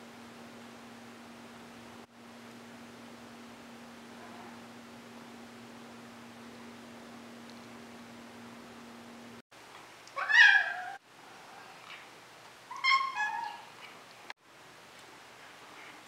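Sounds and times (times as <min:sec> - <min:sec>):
cat meowing: 0:10.2 - 0:11.0.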